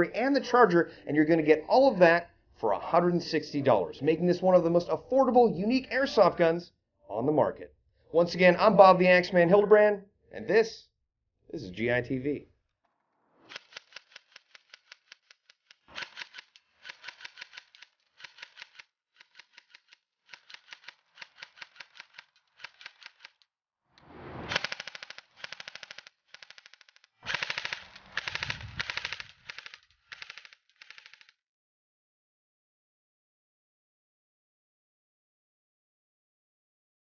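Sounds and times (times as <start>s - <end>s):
airsoft gun firing bursts: 24.5s - 31.2s.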